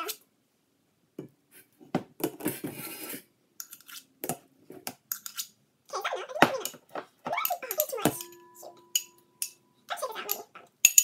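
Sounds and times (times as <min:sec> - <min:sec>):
metal spoon scraping glass: 0:03.0 - 0:04.0, 0:05.1 - 0:05.5, 0:07.4 - 0:09.6, 0:10.2 - 0:11.0
spoon clinking: 0:07.4 - 0:11.0.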